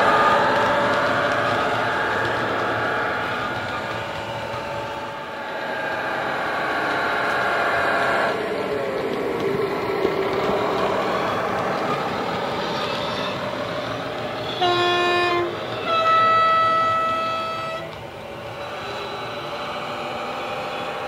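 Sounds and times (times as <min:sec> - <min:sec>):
two-tone horn: 0:14.5 - 0:18.0.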